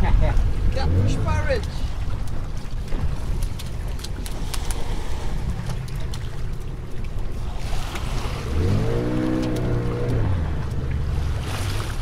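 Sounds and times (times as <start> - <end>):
rush of water: 0.0 - 12.0
wind and water rumble: 0.0 - 12.0.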